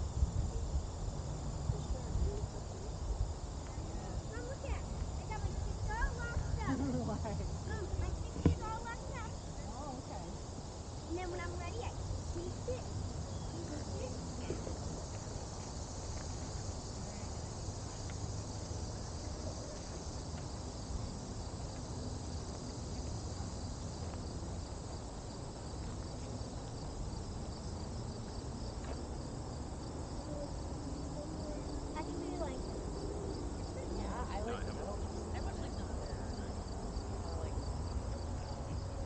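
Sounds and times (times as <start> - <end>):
insects chirring: 0.0 - 39.0
faint voices: 30.1 - 39.0.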